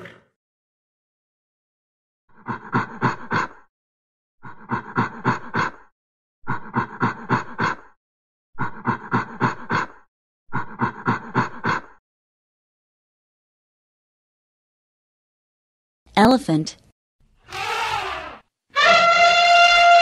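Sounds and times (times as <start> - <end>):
monkey cries: 17.4 - 20.0.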